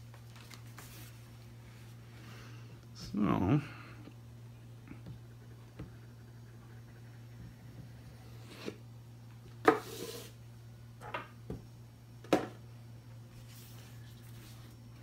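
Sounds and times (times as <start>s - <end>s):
low hum: 1.2s - 9.5s.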